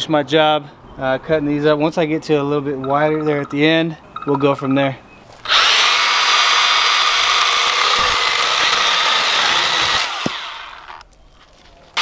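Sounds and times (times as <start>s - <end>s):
pruning saw cutting log: 5.4s - 11.0s.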